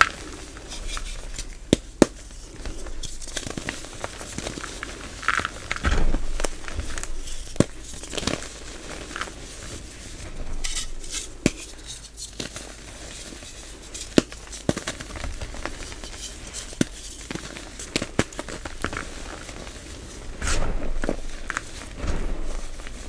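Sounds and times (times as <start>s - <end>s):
chalk crumbling in hands: 10.6s - 20.2s.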